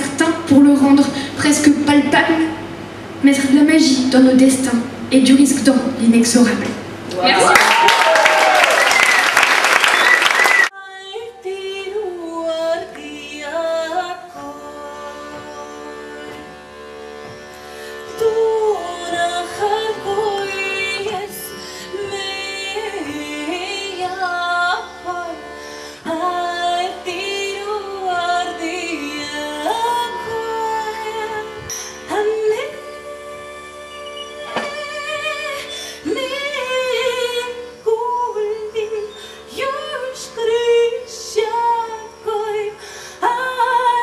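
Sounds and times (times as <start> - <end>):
woman singing: 0.0 - 2.6, 10.7 - 16.5, 18.1 - 44.0
button accordion chords: 12.0 - 44.0.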